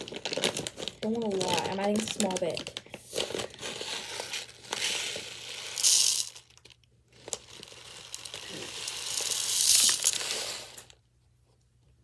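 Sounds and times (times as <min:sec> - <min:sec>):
plastic bag crinkling: 0:00.0 - 0:11.0
rice grains pouring: 0:04.0 - 0:06.6, 0:07.2 - 0:10.9.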